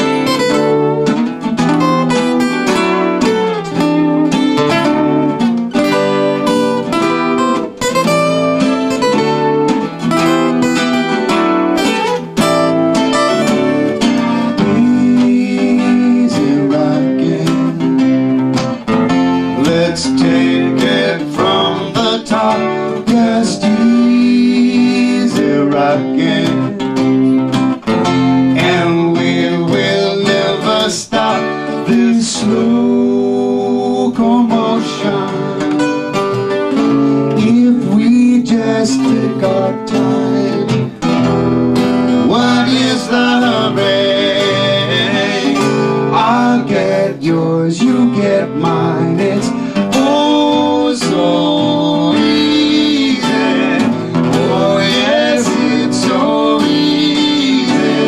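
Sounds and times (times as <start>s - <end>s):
acoustic guitars strummed and picked: 0.0s - 58.0s
men singing in harmony: 14.4s - 17.9s, 19.5s - 27.0s, 28.6s - 35.8s, 37.4s - 40.9s, 42.1s - 58.0s.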